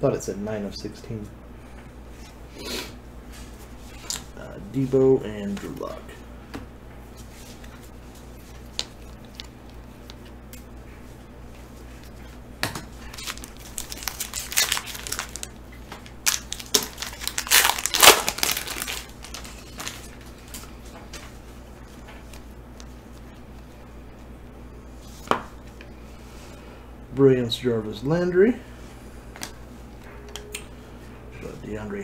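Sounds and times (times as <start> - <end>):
foil wrapper crinkling: 12.9 - 20.8.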